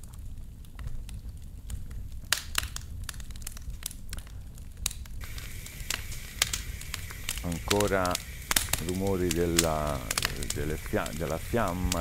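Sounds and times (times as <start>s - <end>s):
campfire crackling: 0.0s - 12.0s
fireplace hiss: 5.2s - 12.0s.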